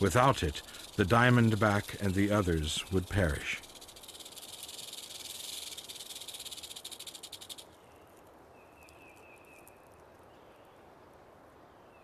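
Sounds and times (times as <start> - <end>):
rattlesnake rattle buzzing: 0.0 - 7.8.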